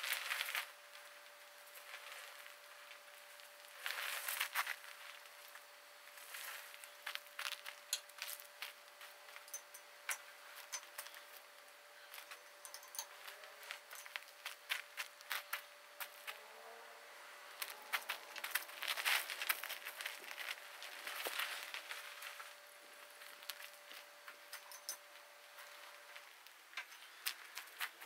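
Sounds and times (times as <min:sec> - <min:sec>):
faint steady hum: 0:00.0 - 0:28.0
footsteps crunching on gravel: 0:01.7 - 0:09.6, 0:12.2 - 0:16.5, 0:17.6 - 0:24.6.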